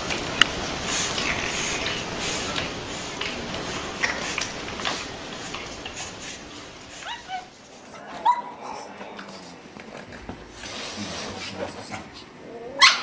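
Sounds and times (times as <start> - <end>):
dog yipping: 7.0 - 7.5, 12.8 - 13.0.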